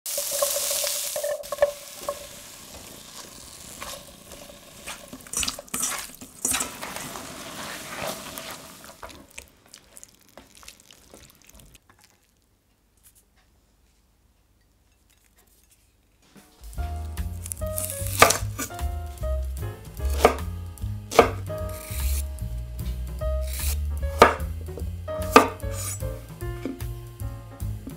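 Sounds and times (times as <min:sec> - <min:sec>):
vegetables sizzling in a pan: 0:00.1 - 0:11.8, 0:16.8 - 0:19.0, 0:20.1 - 0:27.0.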